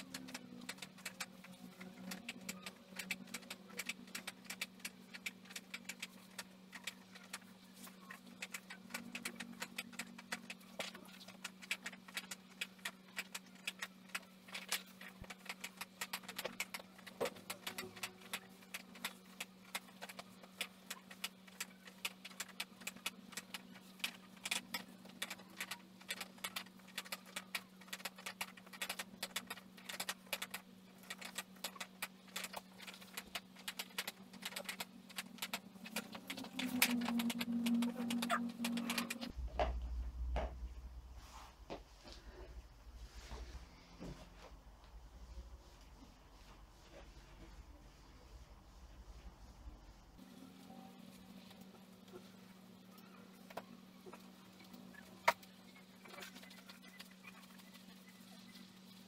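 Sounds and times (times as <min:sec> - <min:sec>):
foam roller clicking and rattling: 0:00.0 - 0:39.4
steady low hum: 0:00.0 - 0:59.0.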